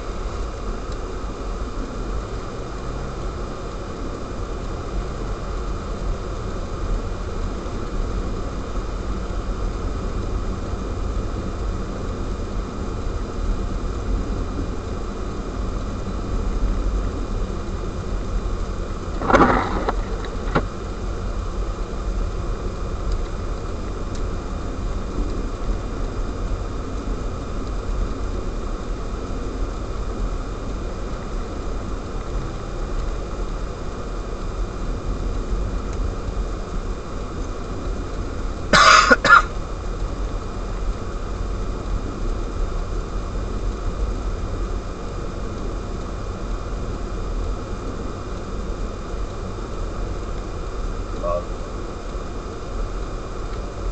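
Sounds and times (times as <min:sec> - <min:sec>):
car road and wind noise: 0:00.0 - 0:53.9
clatter: 0:19.1 - 0:20.7
person coughing: 0:38.8 - 0:39.5.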